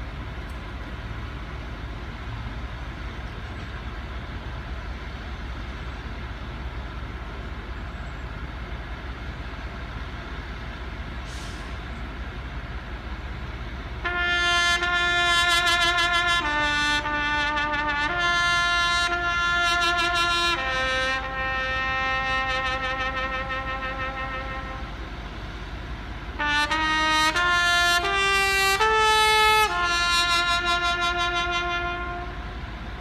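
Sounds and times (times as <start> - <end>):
street background rumble: 0.0 - 33.0
solo trumpet playing: 14.0 - 24.9, 26.4 - 32.6.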